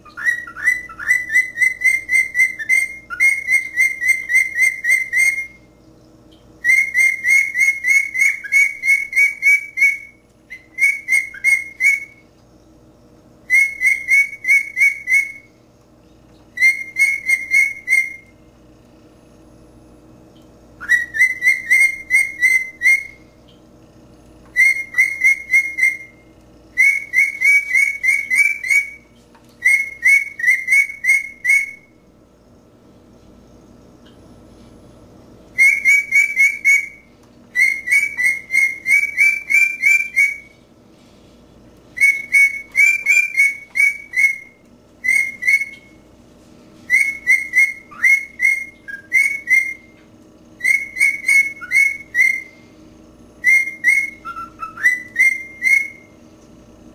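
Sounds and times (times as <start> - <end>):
cockatiel whistling: 0.0 - 5.7, 6.6 - 12.3, 13.4 - 15.5, 16.6 - 18.4, 20.8 - 23.3, 24.5 - 32.0, 35.6 - 40.6, 42.0 - 46.0, 46.9 - 50.0, 50.6 - 52.6, 53.4 - 56.1.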